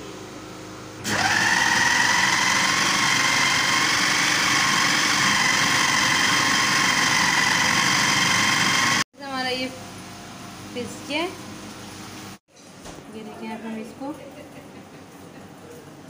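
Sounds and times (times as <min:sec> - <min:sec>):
electric food chopper whining: 0:01.0 - 0:09.1.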